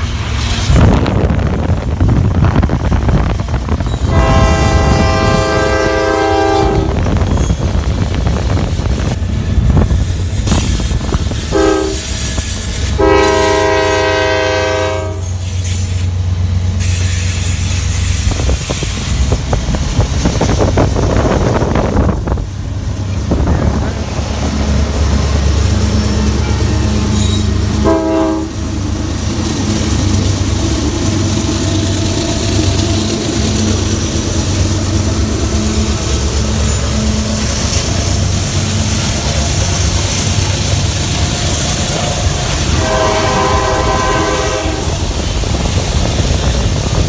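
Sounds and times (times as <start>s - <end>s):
rumble of freight cars rolling: 0.0s - 47.0s
locomotive air horn chord: 4.0s - 7.0s, 11.5s - 12.2s, 13.0s - 15.4s, 27.7s - 28.6s, 42.0s - 45.0s.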